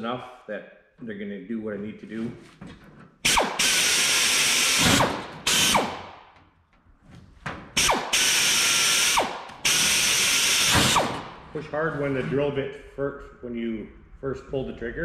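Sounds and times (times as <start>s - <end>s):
pneumatic drill hissing: 3.2s - 6.0s, 7.8s - 11.3s
drill spinning down whine: 3.3s - 6.0s, 7.8s - 11.2s.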